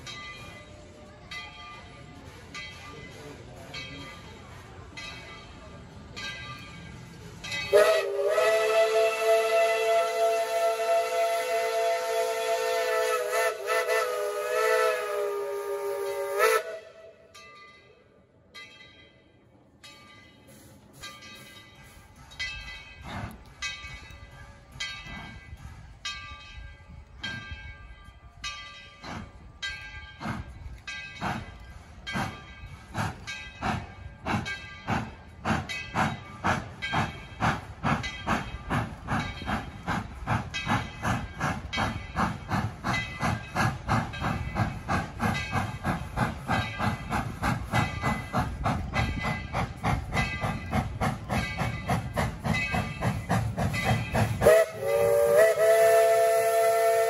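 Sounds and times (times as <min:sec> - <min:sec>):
steam locomotive exhaust chuffs: 0:00.0 - 0:17.4, 0:20.3 - 0:57.0
steam hissing: 0:07.2 - 0:16.9, 0:20.5 - 0:23.7, 0:30.1 - 0:57.0.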